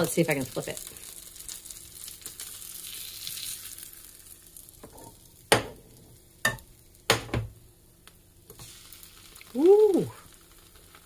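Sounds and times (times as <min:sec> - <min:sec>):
spatula flipping food: 0:00.0 - 0:05.8
butter sizzling in frying pan: 0:00.0 - 0:11.0.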